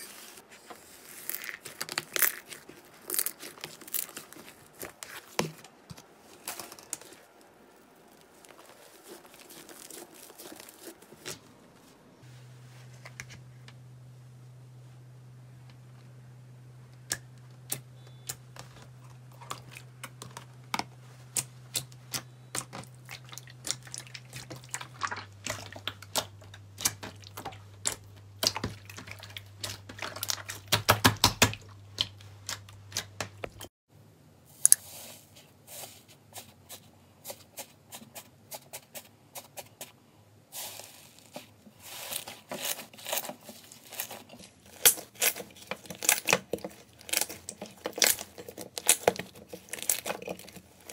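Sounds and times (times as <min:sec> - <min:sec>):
thick slime crackling and tearing: 0:01.0 - 0:05.2, 0:06.4 - 0:11.4, 0:40.6 - 0:50.9.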